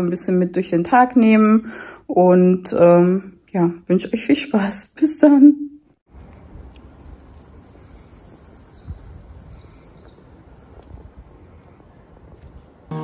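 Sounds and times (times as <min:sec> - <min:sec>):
insects trilling: 0:06.1 - 0:13.0.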